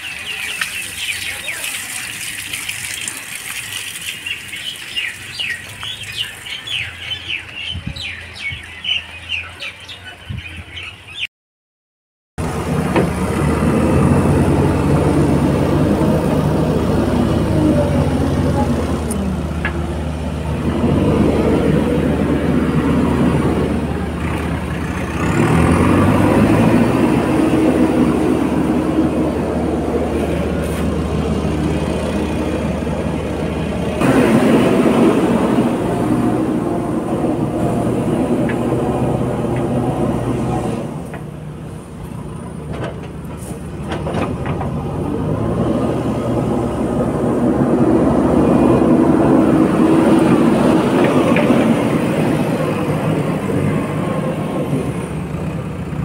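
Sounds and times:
small birds chirping: 0.0 - 11.3
diesel engine of loader running: 12.4 - 56.0.

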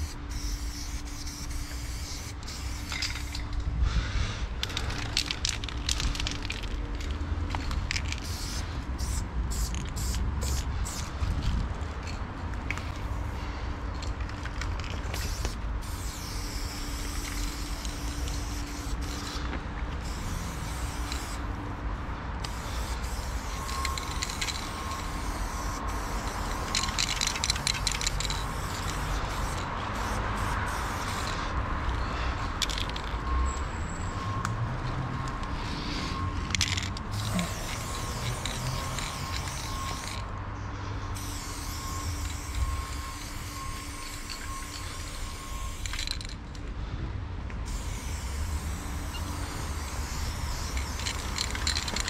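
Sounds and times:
spray paint can hissing: 0.0 - 3.5, 7.9 - 11.2, 14.9 - 21.5, 22.4 - 31.5, 36.6 - 40.2, 41.2 - 46.4, 47.6 - 52.0
low rumble of traffic or wind: 0.0 - 52.0.

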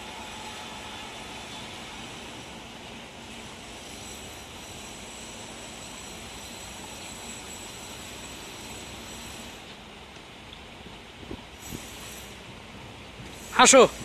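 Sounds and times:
outdoor background hiss: 0.0 - 14.0.

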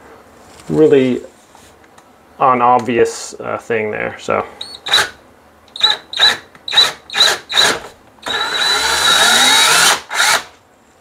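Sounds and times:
power drill drilling: 5.8 - 10.5.

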